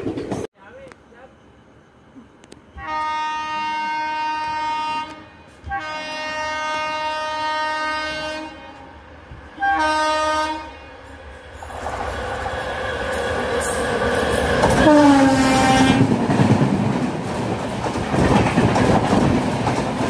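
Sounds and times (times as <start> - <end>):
train rumbling: 0.0 - 20.0
locomotive horn blasts: 2.8 - 9.0, 9.6 - 11.0, 14.7 - 16.1.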